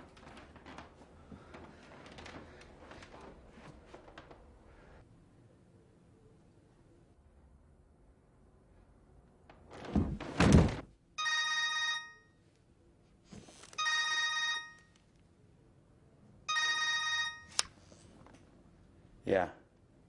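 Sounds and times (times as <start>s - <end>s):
loud thump with rustling: 9.7s - 10.9s
cell phone ringing: 11.2s - 12.4s, 13.8s - 15.0s, 16.5s - 17.6s.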